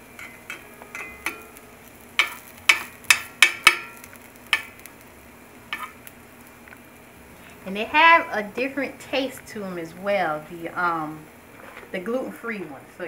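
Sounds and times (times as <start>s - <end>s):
pancakes sizzling faintly: 0.0s - 13.0s
metal spatula clinking on skillet: 0.2s - 1.6s, 2.2s - 4.7s.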